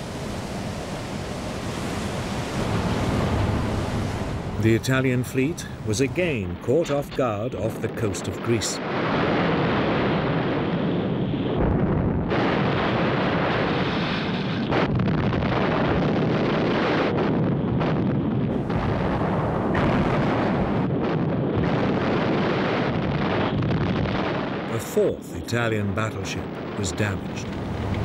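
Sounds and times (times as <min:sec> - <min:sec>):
shell explosions: 0:04.6 - 0:28.0
naval gunfire: 0:06.9 - 0:24.9.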